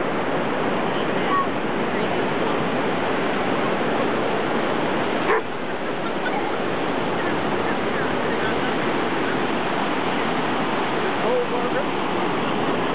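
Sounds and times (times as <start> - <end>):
surf and wind noise: 0.0 - 12.9
dog barking: 5.2 - 5.5.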